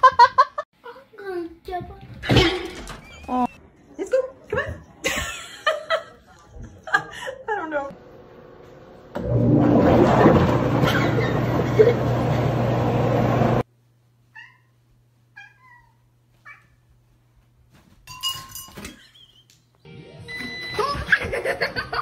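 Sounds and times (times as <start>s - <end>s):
cat meowing: 14.3s - 16.8s.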